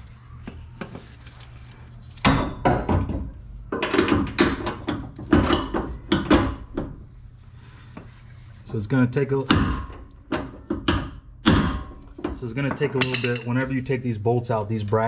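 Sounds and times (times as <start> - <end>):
metallic knocks and clanks: 2.3 - 7.0, 9.6 - 13.7.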